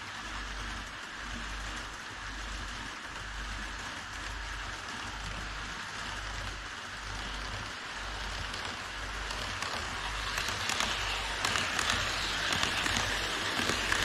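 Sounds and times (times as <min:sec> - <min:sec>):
model train wheels rolling: 0:04.9 - 0:14.0
wheels clicking over rail joints: 0:07.2 - 0:14.0.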